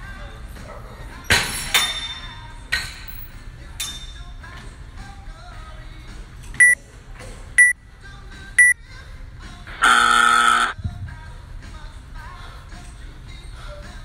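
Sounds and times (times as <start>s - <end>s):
long buzzer tone: 9.8s - 10.8s.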